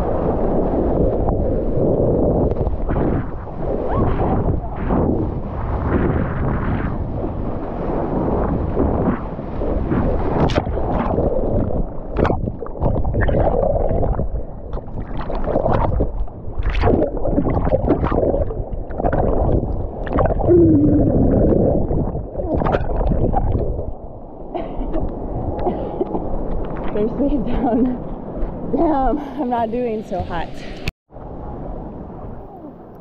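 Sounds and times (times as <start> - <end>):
seawater sloshing and gurgling: 0.0 - 29.2
sharp water splashes: 7.9 - 23.9.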